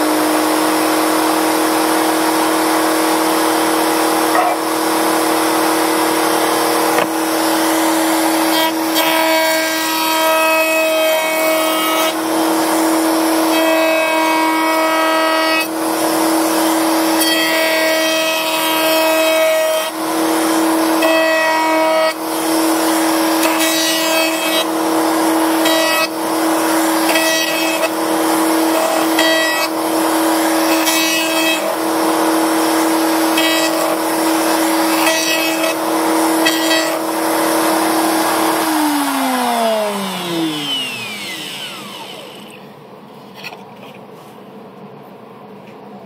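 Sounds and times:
router spinning down: 0.0s - 9.1s, 24.6s - 42.7s
router whining while cutting wood: 0.0s - 42.8s.

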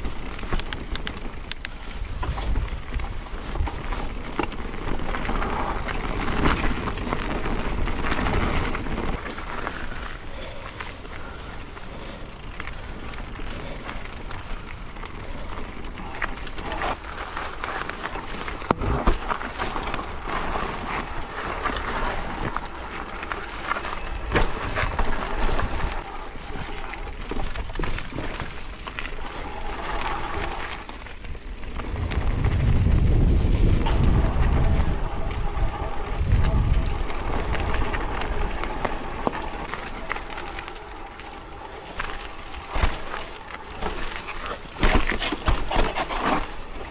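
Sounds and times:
bike clattering over stones: 0.0s - 11.4s, 12.2s - 46.9s
bike tyre noise: 0.0s - 46.9s
wind buffeting microphone: 29.6s - 39.7s.

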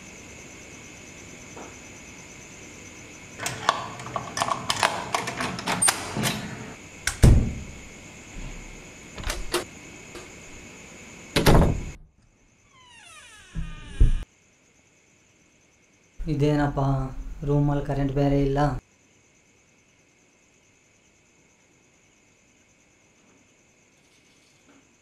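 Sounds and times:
crickets chirping: 0.0s - 25.0s
door latch rattling and clicking: 3.4s - 6.5s, 7.1s - 7.8s, 9.2s - 9.6s
heavy door thud: 3.4s - 9.6s, 11.4s - 12.0s, 13.4s - 14.2s.

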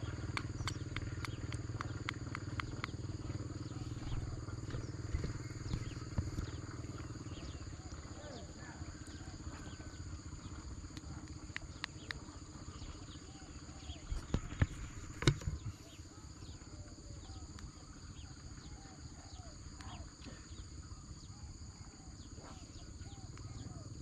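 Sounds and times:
sharp clicks: 0.0s - 7.2s, 10.9s - 12.4s, 14.1s - 15.8s
high-pitched insect chorus: 0.0s - 24.0s
pulsing low croaks: 0.0s - 24.0s.

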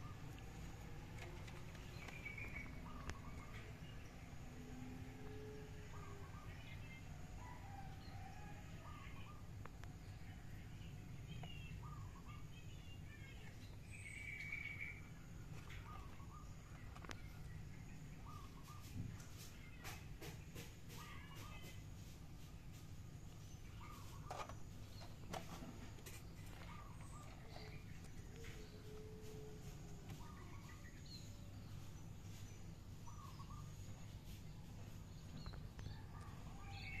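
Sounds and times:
small birds chirping: 0.0s - 37.0s
steady low hum: 0.0s - 37.0s.

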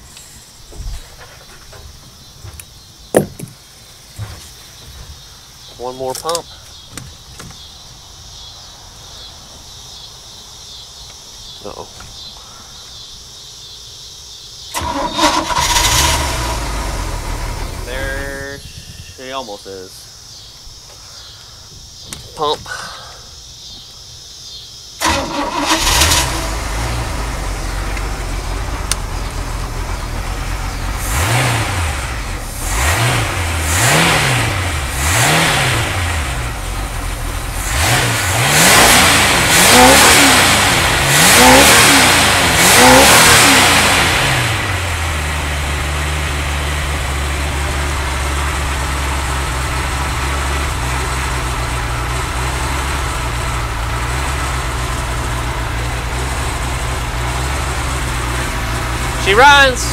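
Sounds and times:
boat engine revving and idling: 14.8s - 18.5s, 25.0s - 59.9s.

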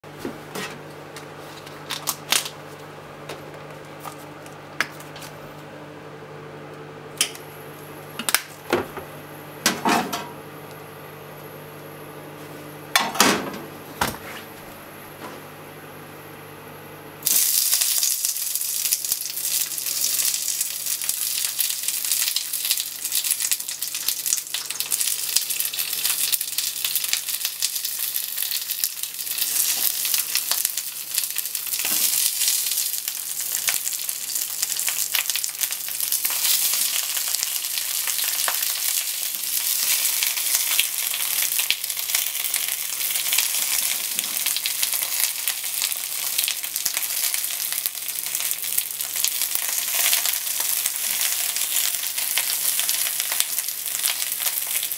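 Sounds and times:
steady low hum: 0.1s - 17.4s
hot oil sizzling: 17.2s - 54.9s.

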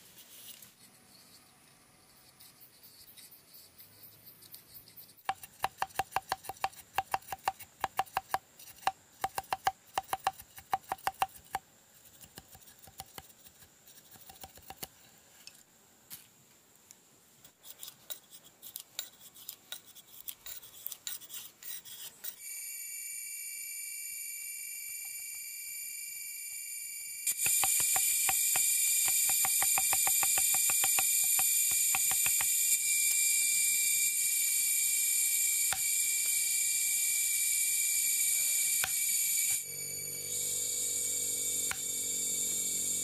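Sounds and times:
knife shaving bamboo strips: 4.5s - 14.9s
knife clicking on bamboo: 5.2s - 15.0s, 27.3s - 32.6s
forest insects droning: 22.4s - 43.0s.

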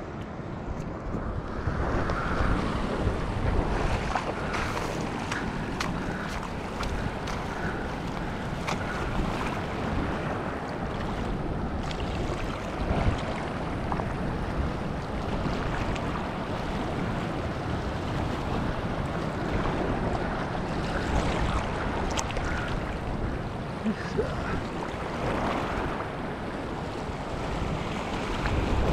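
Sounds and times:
wind buffeting microphone: 0.0s - 28.9s
small waves washing over rock: 2.8s - 10.4s.

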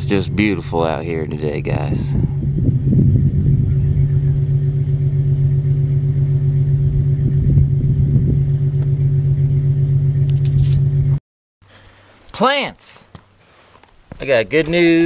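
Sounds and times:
wind rumbling on microphone: 0.0s - 10.9s
vehicle engine idling: 0.0s - 11.2s.

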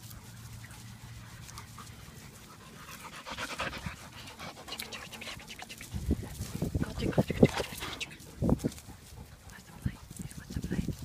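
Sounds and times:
dog panting: 0.0s - 10.4s.

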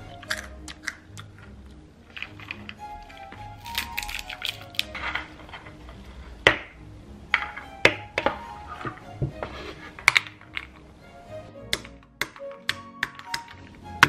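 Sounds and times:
light background music: 0.0s - 14.0s
walnuts knocking together: 0.1s - 5.4s, 6.5s - 6.8s, 10.0s - 10.9s, 11.7s - 14.0s.

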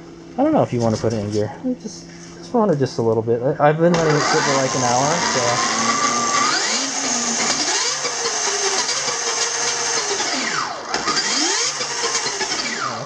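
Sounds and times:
electric motor whining: 3.9s - 13.0s.

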